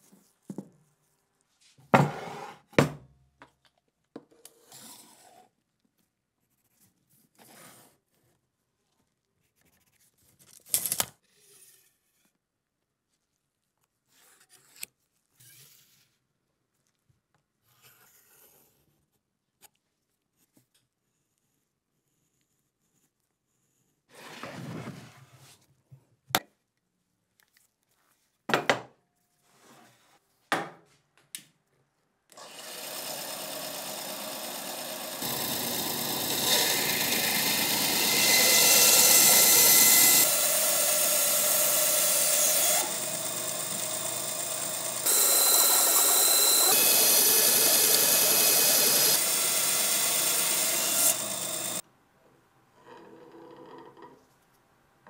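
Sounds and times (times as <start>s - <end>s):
band saw cutting wood: 32.4s - 51.8s.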